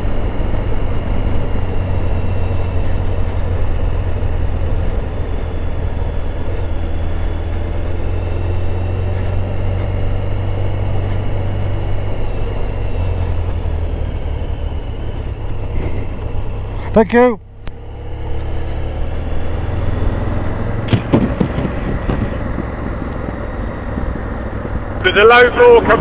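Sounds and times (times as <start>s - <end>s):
motorcycle engine running: 0.0s - 26.0s
wind rush: 18.5s - 26.0s.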